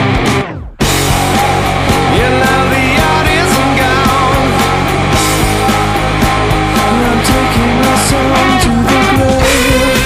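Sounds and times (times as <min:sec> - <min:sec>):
guitar: 0:00.0 - 0:10.0
loud rock music: 0:00.0 - 0:10.0
steady drum beat: 0:00.0 - 0:10.0
person singing: 0:01.2 - 0:10.0.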